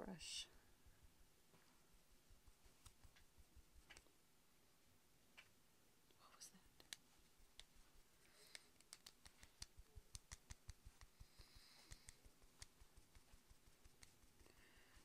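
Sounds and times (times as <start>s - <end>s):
makeup brush tapping skin: 0.6s - 4.2s, 6.6s - 15.0s.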